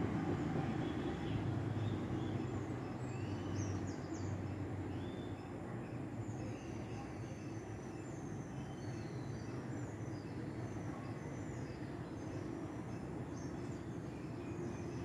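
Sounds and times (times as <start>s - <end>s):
low outdoor rumble: 0.0s - 3.9s
small birds chirping: 0.4s - 15.0s.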